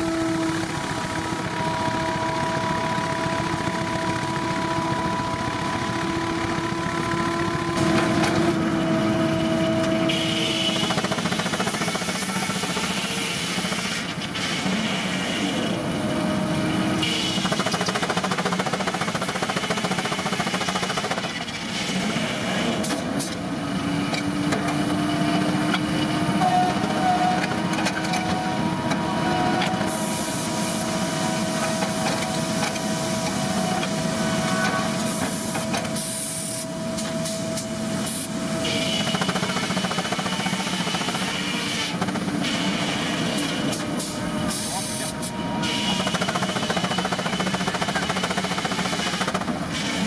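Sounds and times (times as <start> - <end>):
sawmill humming: 0.0 - 50.0
steam hissing: 10.1 - 15.8, 29.4 - 50.0.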